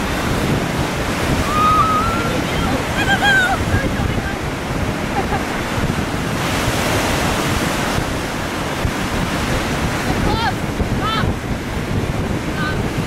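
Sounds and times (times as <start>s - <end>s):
surf breaking on beach: 0.0s - 13.0s
wind buffeting microphone: 0.0s - 13.0s.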